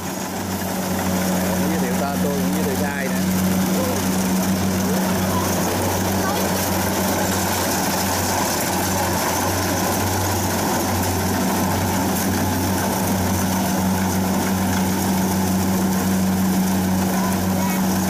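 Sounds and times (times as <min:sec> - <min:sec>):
combine harvester engine droning: 0:00.0 - 0:18.0.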